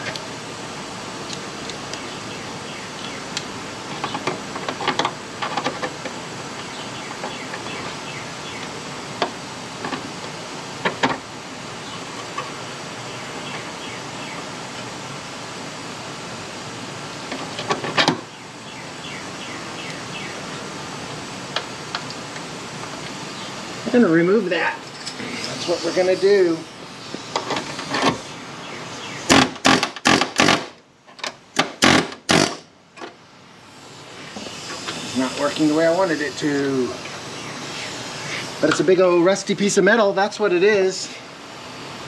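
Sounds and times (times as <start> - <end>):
steady background hiss: 0.0 - 42.0.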